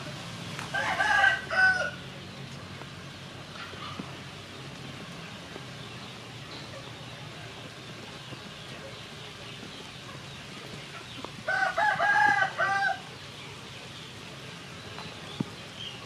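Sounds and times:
rooster crowing: 0.7 - 2.0, 11.5 - 13.1.

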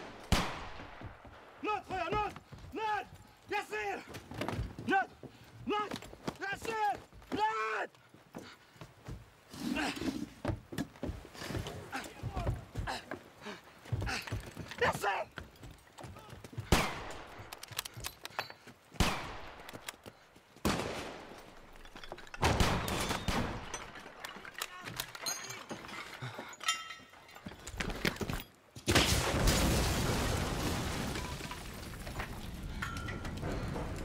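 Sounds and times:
rifle shots and volleys: 0.0 - 1.6, 16.7 - 17.9, 19.0 - 19.8, 22.4 - 24.2.

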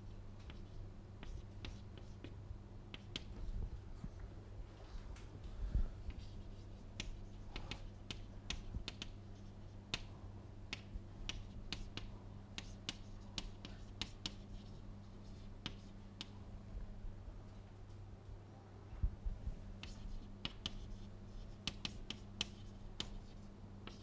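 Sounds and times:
chalk tapping on blackboard: 7.0 - 9.2, 10.7 - 16.3, 19.8 - 24.0.

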